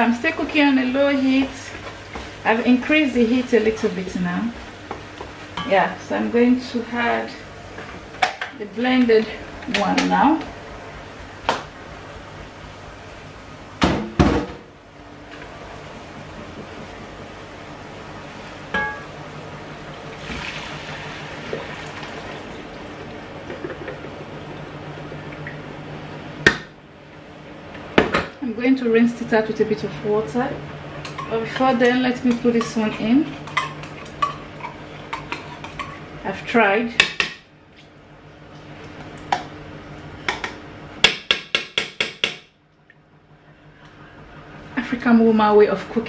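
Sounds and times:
puree pouring into a pot: 20.1 - 25.6.

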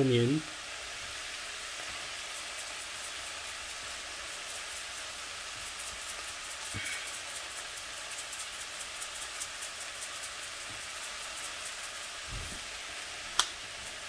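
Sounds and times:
vegetables sizzling in a frying pan: 0.0 - 14.0
soft low bump: 12.3 - 12.6.

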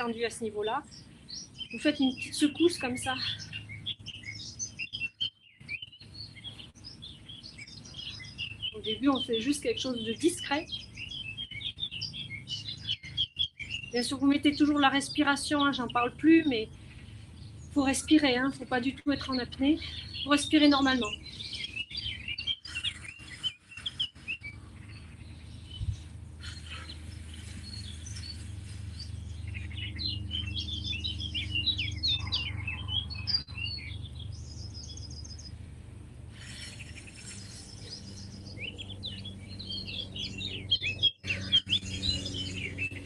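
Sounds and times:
bird trill: 0.0 - 35.5, 36.4 - 43.0
birds chirping: 0.0 - 43.0
low hum: 16.0 - 43.0.

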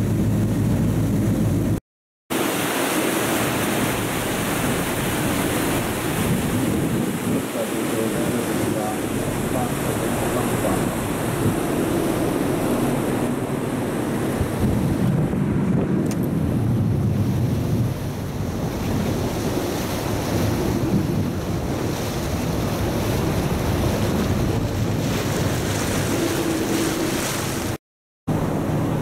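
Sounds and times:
water rushing along hull: 0.0 - 29.0
wind buffeting microphone: 3.0 - 29.0
ferry engine running: 8.8 - 14.6.

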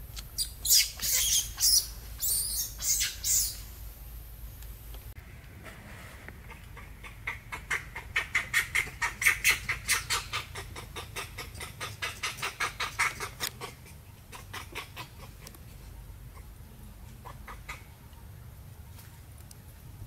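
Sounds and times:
animal clucking calls: 6.3 - 15.7, 17.1 - 18.0.

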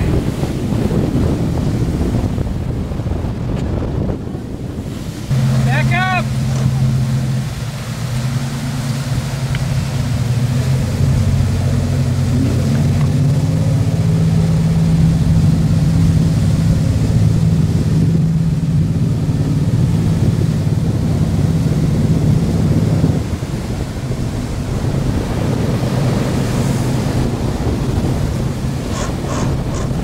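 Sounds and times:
boat engine droning: 0.0 - 30.0
wind and water hiss: 0.0 - 30.0.

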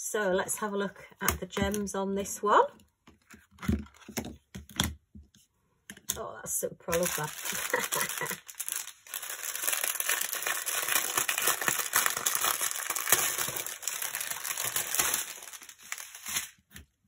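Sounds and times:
plastic packaging crinkling: 6.9 - 17.0.

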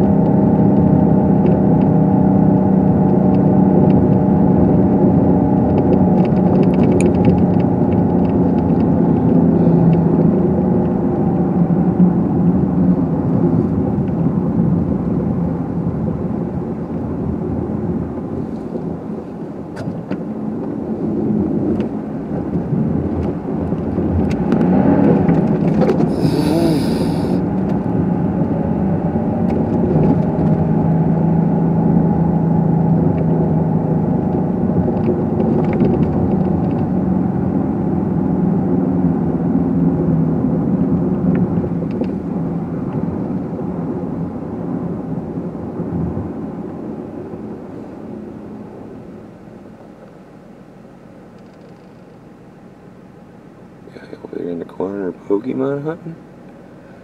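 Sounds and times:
car engine and tyre noise: 0.0 - 57.0
brief hiss: 26.1 - 27.4.

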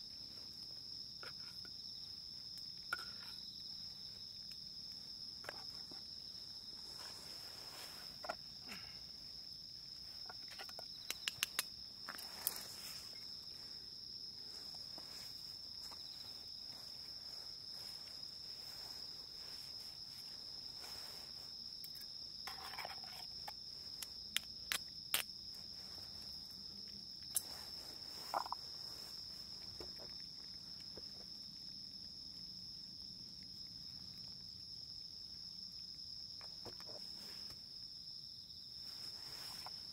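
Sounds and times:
insects trilling: 0.0 - 39.9
sharp clicks: 11.0 - 11.7.

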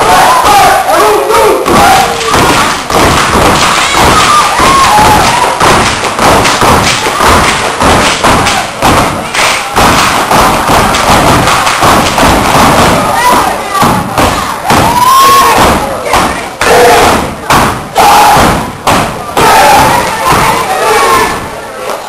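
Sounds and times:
hand claps: 2.0 - 13.0.

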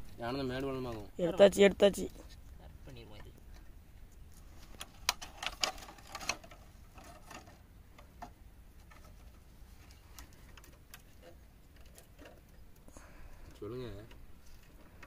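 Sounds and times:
plastic bottle clicks and crackles: 4.7 - 6.6.

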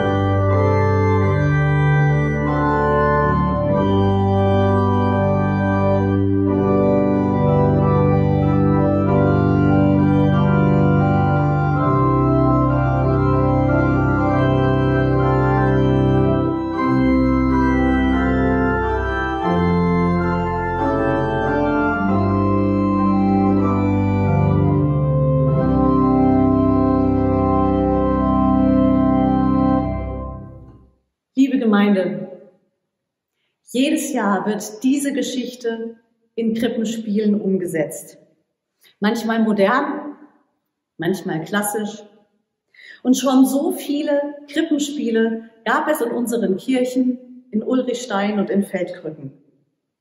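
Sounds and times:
church organ playing chords: 0.0 - 30.9.

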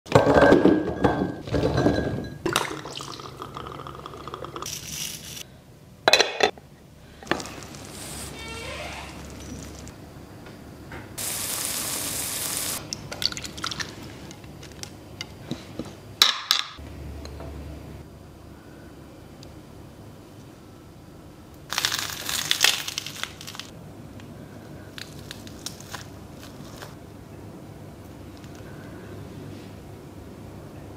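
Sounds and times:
toasted bread crunching: 21.7 - 23.7, 24.9 - 27.0.

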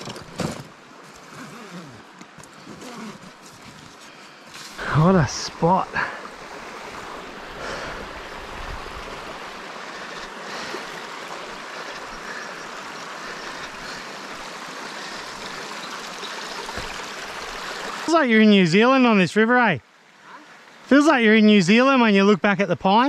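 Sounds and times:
river water rushing over rocks: 4.7 - 18.6.

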